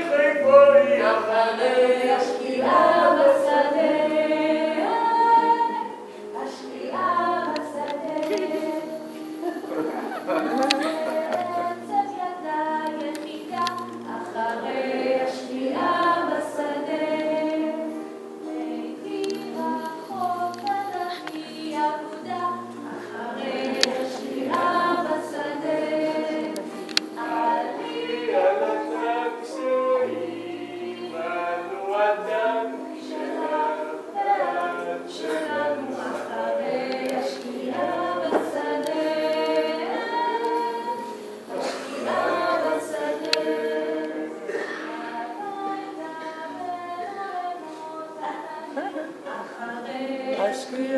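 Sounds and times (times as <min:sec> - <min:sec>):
acoustic guitar: 0:00.0 - 0:50.9
voices singing along: 0:00.0 - 0:50.9
woman singing into microphone: 0:01.0 - 0:31.4, 0:32.6 - 0:50.9.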